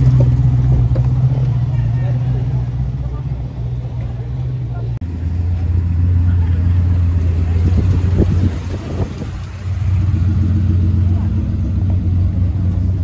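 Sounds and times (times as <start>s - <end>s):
vehicle engine drone: 0.0s - 13.0s
faint muffled voices: 1.3s - 9.5s.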